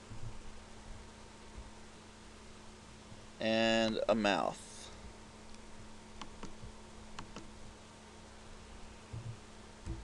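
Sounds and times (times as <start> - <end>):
faint steady hum: 0.0 - 10.0
computer mouse and keyboard clicks: 6.2 - 7.5
dull thumps: 9.1 - 10.0.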